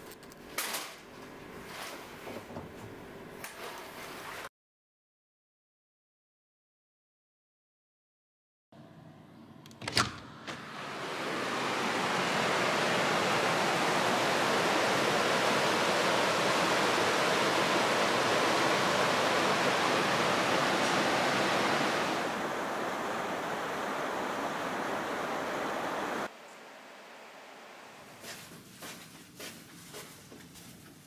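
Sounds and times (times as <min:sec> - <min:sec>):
mountain stream rushing: 0:10.8 - 0:28.1.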